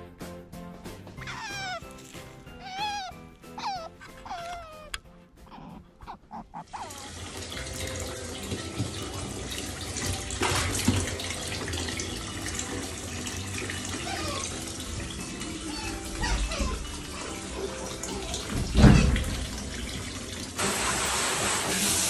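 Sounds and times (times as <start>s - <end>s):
water rushing from shower hose: 6.6s - 22.0s.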